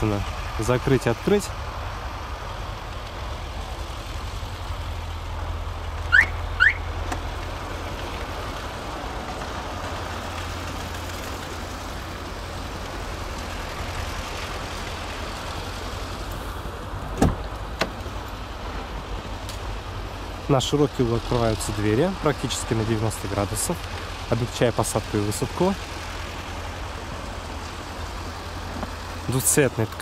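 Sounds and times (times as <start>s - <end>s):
car alarm chirps: 6.1s - 6.9s
car door clunk: 17.1s - 18.1s.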